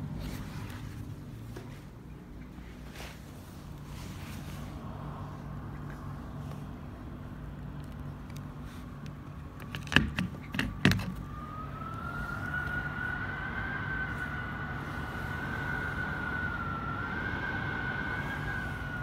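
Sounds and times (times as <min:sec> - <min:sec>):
low hum: 0:00.0 - 0:19.0
thin whine rising in pitch: 0:11.1 - 0:19.0.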